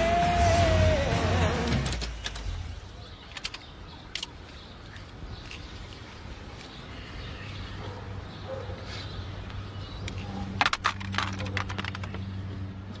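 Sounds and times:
sunglasses clattering on cd cases: 0:10.1 - 0:12.3.

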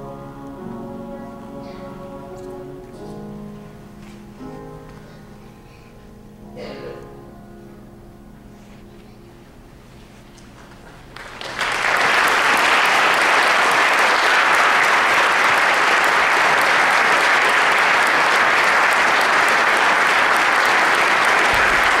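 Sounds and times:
choir and piano chord: 0:00.0 - 0:08.2
audience applause: 0:10.6 - 0:22.0.

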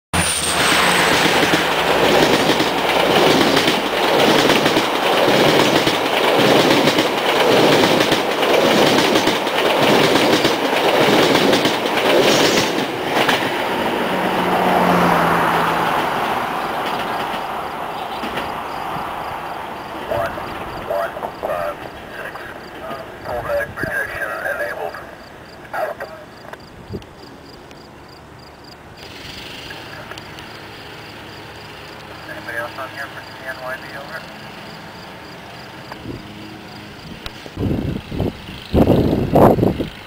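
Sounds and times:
train wheels clattering over rail joints: 0:00.9 - 0:14.0, 0:16.0 - 0:23.2.

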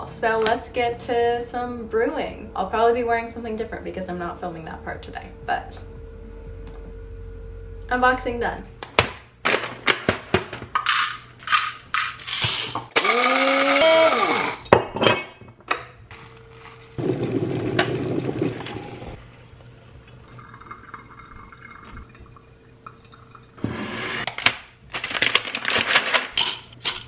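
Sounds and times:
coffee grinder whirring: 0:10.8 - 0:14.6
liquid pouring: 0:17.0 - 0:24.2.

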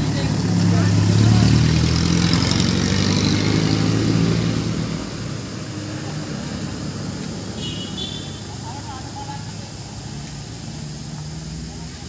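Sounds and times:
motorcycle engine passing by: 0:00.0 - 0:08.8.

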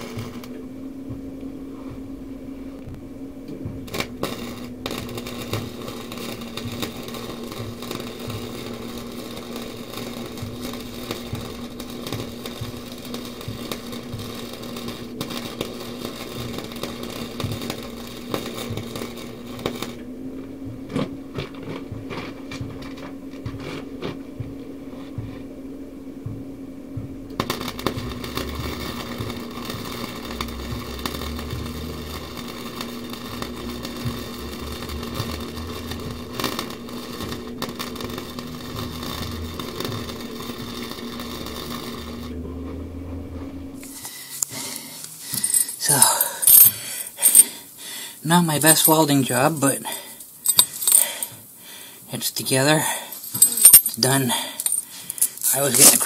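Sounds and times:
steady hum: 0:00.0 - 0:56.0
welder crackling and buzzing: 0:00.0 - 0:56.0.

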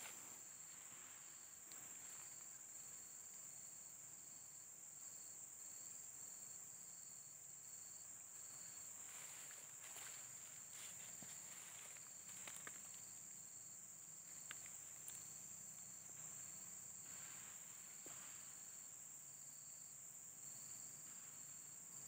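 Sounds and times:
insect chirping: 0:00.0 - 0:22.0.

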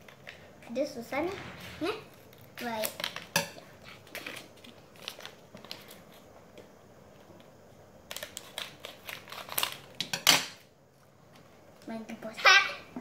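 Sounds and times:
plastic wrapper crinkling: 0:04.0 - 0:06.2, 0:08.1 - 0:10.0
scissors snipping plastic packet: 0:08.1 - 0:10.0.

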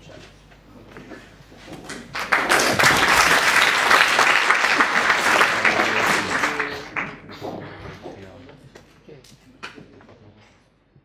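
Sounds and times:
audience applauding: 0:02.1 - 0:07.3.

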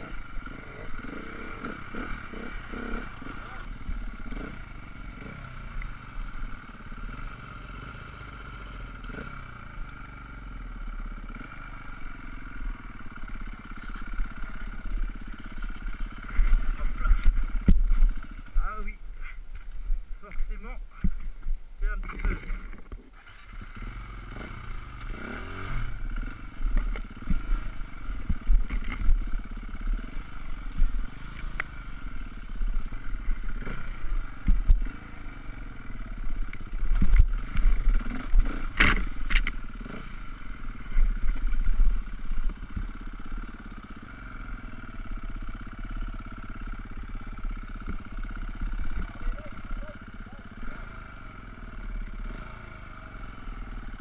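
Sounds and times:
dirt bike engine revving: 0:00.0 - 0:19.0, 0:22.0 - 0:54.0
knocks and clatter over ground: 0:15.4 - 0:18.7, 0:19.5 - 0:23.6, 0:26.6 - 0:29.4, 0:32.6 - 0:35.0, 0:36.6 - 0:40.0.

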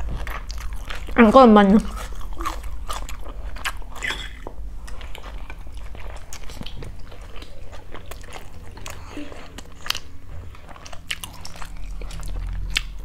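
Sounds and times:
person chewing food: 0:00.0 - 0:01.2, 0:01.8 - 0:13.0
low steady hum: 0:00.0 - 0:13.0
chopsticks and fork on dishes: 0:03.9 - 0:04.5.

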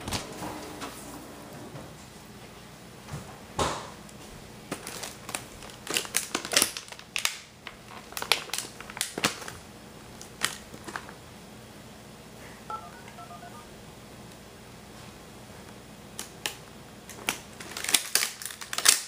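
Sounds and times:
low steady hum: 0:12.5 - 0:14.4.

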